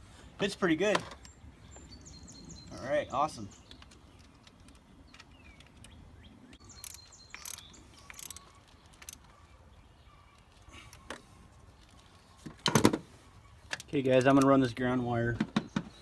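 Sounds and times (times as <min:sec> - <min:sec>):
wrench ratcheting clicks: 0:06.8 - 0:09.2.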